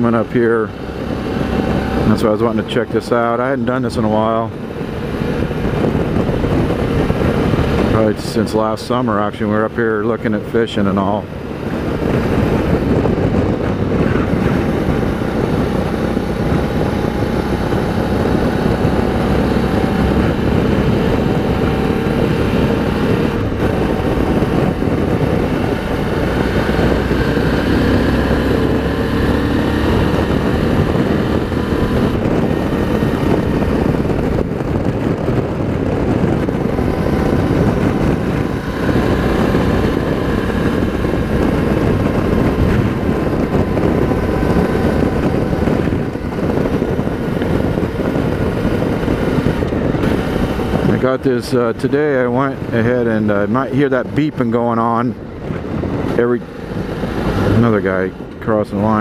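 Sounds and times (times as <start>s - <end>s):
motorcycle engine running: 0.0s - 59.0s
wind rushing on microphone: 0.0s - 59.0s.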